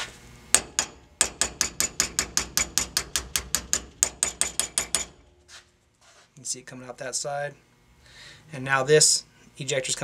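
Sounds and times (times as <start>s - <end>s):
hammer tapping steel punch: 0.5s - 5.4s.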